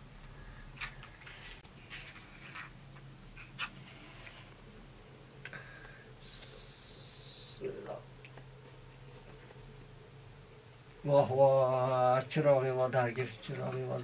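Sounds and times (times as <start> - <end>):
brief hiss: 6.2 - 7.6.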